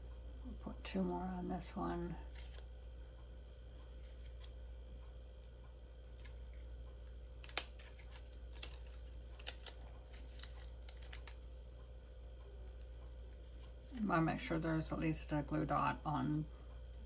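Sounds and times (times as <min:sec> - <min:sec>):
low steady hum: 0:00.0 - 0:17.0
paper handling: 0:02.3 - 0:04.7, 0:06.0 - 0:11.6.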